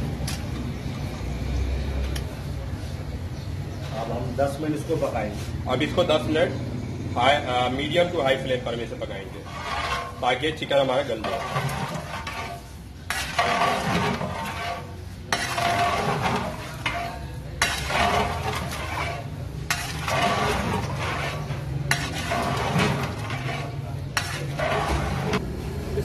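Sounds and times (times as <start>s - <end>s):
metal ladle scraping pot: 7.6s - 25.4s
masala sizzling: 7.8s - 25.5s.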